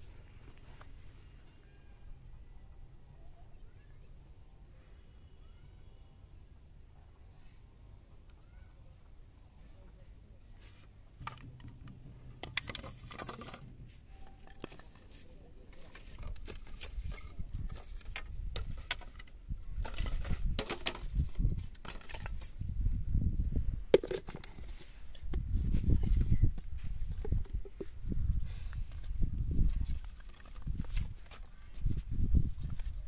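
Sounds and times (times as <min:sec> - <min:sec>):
plastic bottles and sticks handled: 0:10.6 - 0:22.7, 0:23.9 - 0:33.0.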